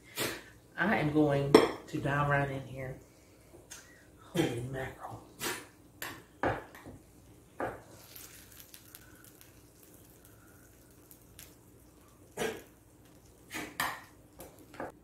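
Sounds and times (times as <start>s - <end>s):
soft wet squishing: 7.2s - 14.8s.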